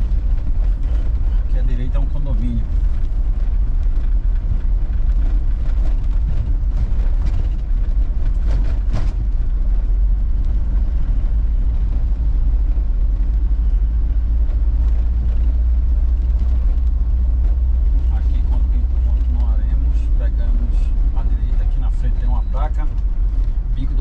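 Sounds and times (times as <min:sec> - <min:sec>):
vehicle engine and road rumble: 0:00.0 - 0:24.0
knocks and rattles: 0:02.5 - 0:11.3.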